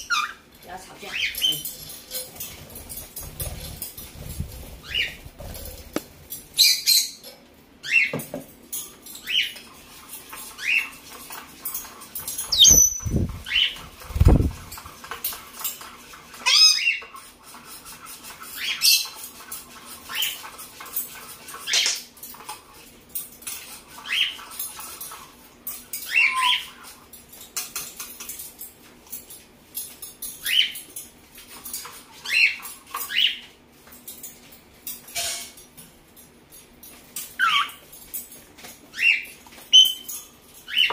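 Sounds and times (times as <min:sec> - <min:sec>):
parrot chirping and squawking: 0:00.0 - 0:03.0, 0:03.6 - 0:05.9, 0:06.5 - 0:08.2, 0:09.1 - 0:22.6, 0:23.5 - 0:27.1, 0:30.3 - 0:30.9, 0:31.7 - 0:33.5, 0:37.2 - 0:37.9, 0:38.9 - 0:40.9.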